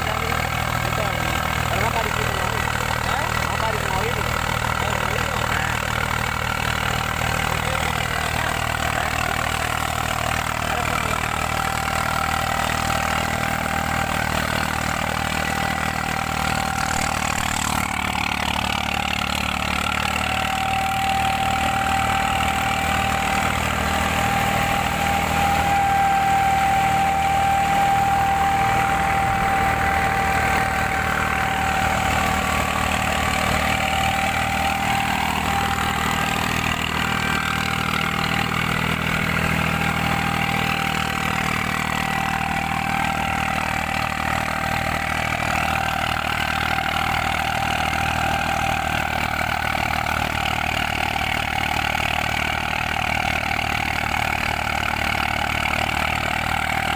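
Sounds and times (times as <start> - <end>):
thresher machinery hum: 0.0 - 50.8
tractor diesel engine running: 0.0 - 56.9
steady high whine: 16.8 - 17.9.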